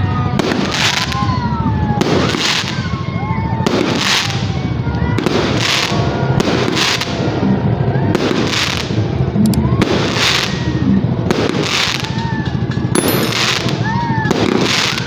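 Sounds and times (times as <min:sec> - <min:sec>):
fireworks crackling: 0:00.3 - 0:01.4, 0:02.0 - 0:02.9, 0:03.7 - 0:07.3, 0:08.1 - 0:09.1, 0:11.2 - 0:15.0.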